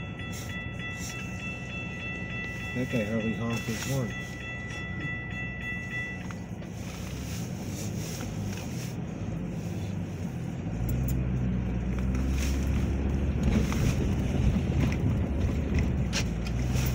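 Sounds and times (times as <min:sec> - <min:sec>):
car engine rumble: 0:00.0 - 0:16.9
tyres on wet road: 0:00.0 - 0:16.9.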